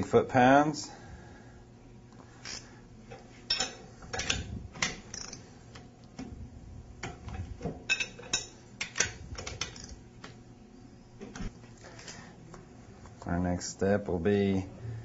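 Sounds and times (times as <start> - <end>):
torque wrench clicking on nuts: 5.1 - 5.4.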